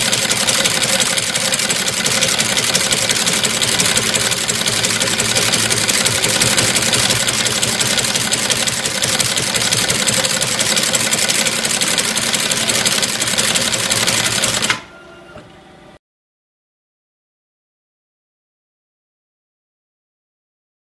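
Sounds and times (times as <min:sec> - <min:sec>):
tufting machine clatter: 0:00.0 - 0:14.8.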